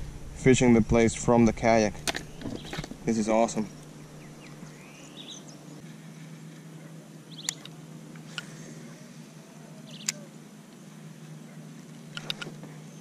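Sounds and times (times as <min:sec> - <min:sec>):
steady low hum: 0:00.0 - 0:13.0
squeaky bird chirps: 0:03.9 - 0:05.6, 0:09.8 - 0:10.3
sharp clicks: 0:07.4 - 0:08.5, 0:09.9 - 0:10.3, 0:12.1 - 0:12.6.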